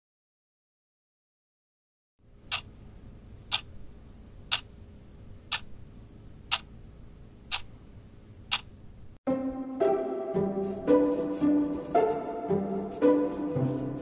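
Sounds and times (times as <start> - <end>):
faint low hum: 2.2 - 9.2
wall clock ticking: 2.4 - 4.7, 5.4 - 5.8, 6.4 - 6.8, 7.4 - 7.8, 8.4 - 8.8.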